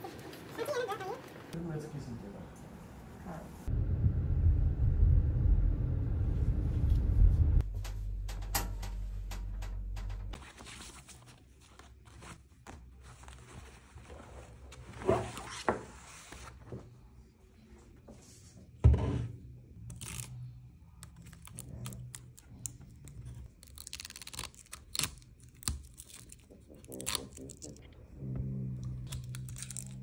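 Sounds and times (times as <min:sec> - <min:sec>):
tape ripping off: 0:23.6 - 0:27.6.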